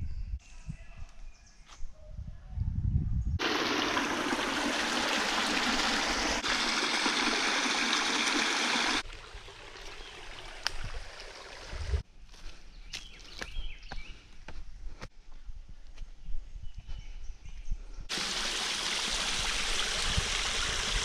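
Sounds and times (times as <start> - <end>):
creek trickling over stones: 3.4 - 12.0, 18.1 - 21.0.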